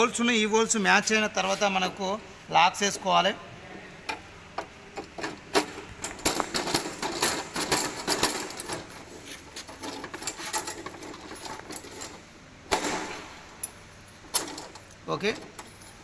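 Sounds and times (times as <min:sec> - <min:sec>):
metal frame rattling and clicking: 0:04.9 - 0:13.0, 0:14.2 - 0:16.0.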